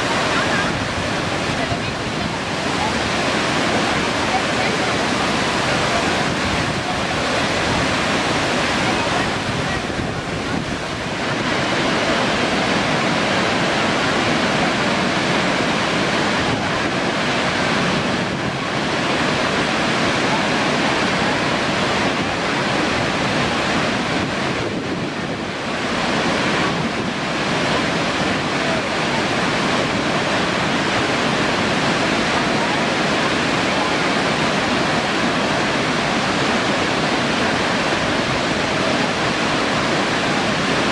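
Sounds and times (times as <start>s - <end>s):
waterfall rushing: 0.0s - 40.9s.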